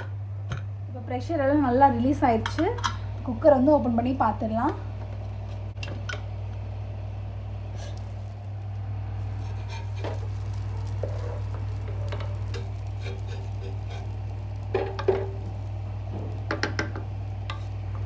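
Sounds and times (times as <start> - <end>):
low hum: 0.0 - 18.0
wooden ladle scraping rice: 9.2 - 15.0.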